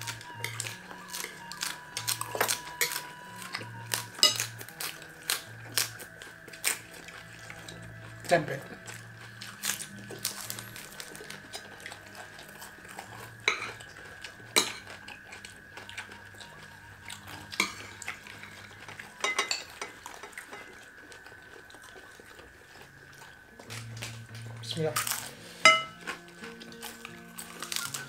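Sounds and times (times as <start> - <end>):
spoons clinking on ceramic plates: 4.2 - 4.5, 13.5 - 13.7, 14.6 - 14.9, 17.5 - 18.6, 19.2 - 20.7, 25.6 - 26.0.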